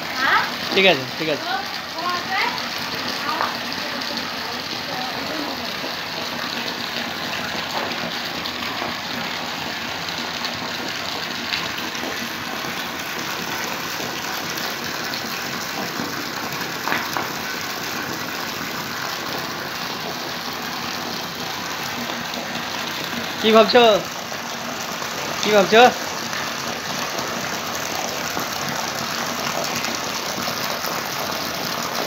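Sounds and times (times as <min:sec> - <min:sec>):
water gushing into fish tank: 0:00.0 - 0:32.0.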